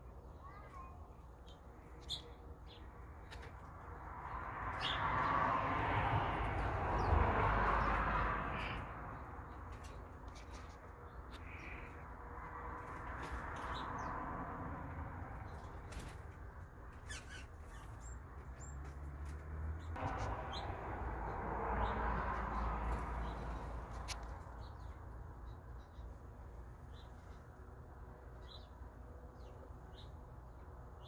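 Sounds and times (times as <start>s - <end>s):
outdoor background noise: 0.0s - 31.0s
bird chirps and calls: 17.0s - 18.8s.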